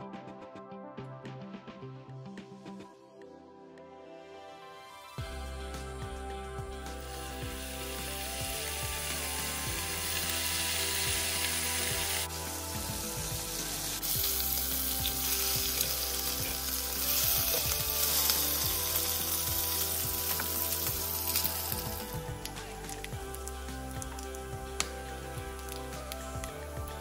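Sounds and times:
bacon sizzling in a frying pan: 7.0s - 24.5s.

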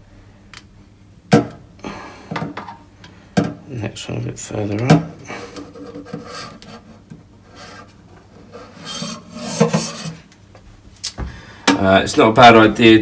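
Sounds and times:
rubber o-ring scraping on metal: 5.6s - 10.3s.

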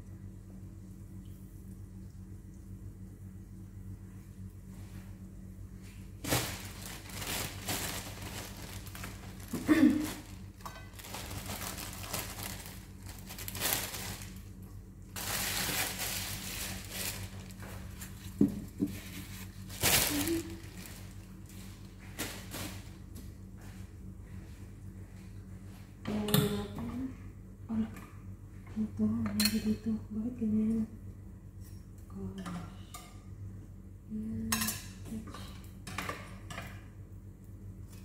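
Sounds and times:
steady low hum: 0.0s - 38.0s
plastic bag crinkling: 6.2s - 23.0s.

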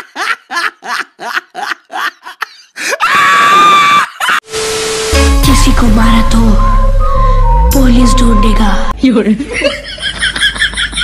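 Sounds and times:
high scream: 3.0s - 4.3s
static hiss: 4.4s - 7.0s
steady beep tone: 4.5s - 9.0s.

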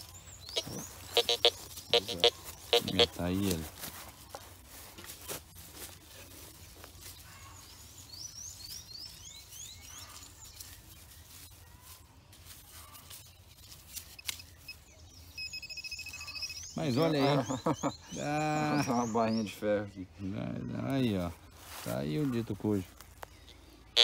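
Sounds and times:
hand tool scraping dry soil: 9.5s - 14.6s.

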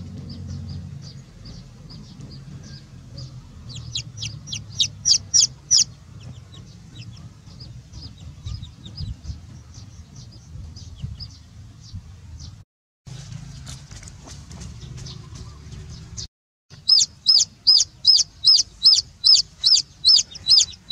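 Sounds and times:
steady low rumble: 0.0s - 12.6s
chicks peeping: 0.1s - 12.6s, 14.8s - 20.9s.

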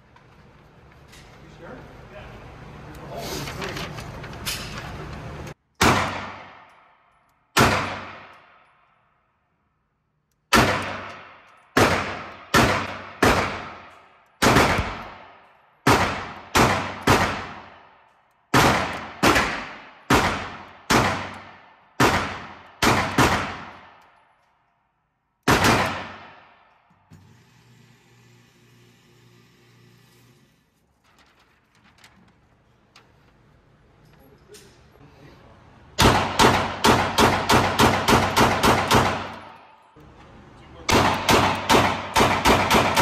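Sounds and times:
pistol shots echoing indoors: 5.6s - 26.9s, 36.0s - 40.0s, 40.9s - 43.0s.

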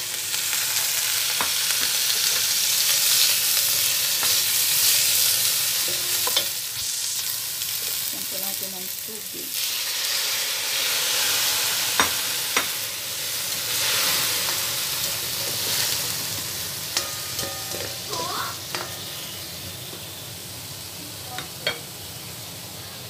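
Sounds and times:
vegetables sizzling in a wok: 0.0s - 23.0s
steam hissing: 2.1s - 16.8s.

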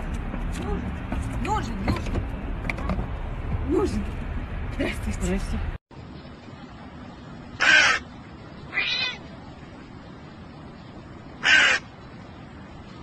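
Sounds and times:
crow cawing: 7.6s - 8.0s, 11.4s - 11.9s.

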